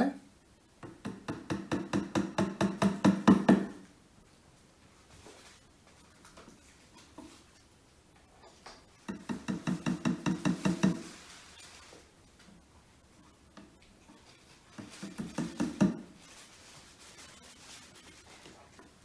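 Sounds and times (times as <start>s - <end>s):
hammer tapping wooden dowels: 0.8s - 3.8s, 9.0s - 11.2s, 14.7s - 16.1s.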